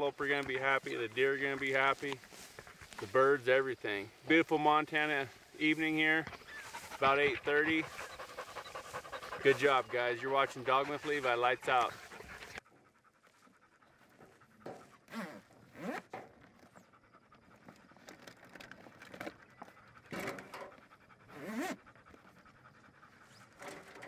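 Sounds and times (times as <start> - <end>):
dogs panting: 0.0 - 24.0
clunks of plastic kennels: 20.1 - 20.8, 23.5 - 24.0.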